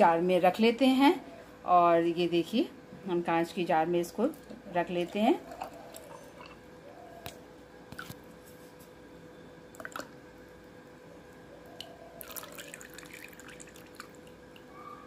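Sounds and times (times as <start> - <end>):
oil dripping into glass jar: 11.8 - 14.7.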